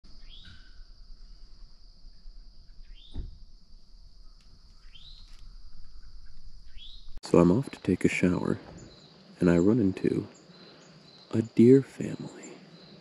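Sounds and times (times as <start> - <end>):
low thump: 3.0 - 3.6.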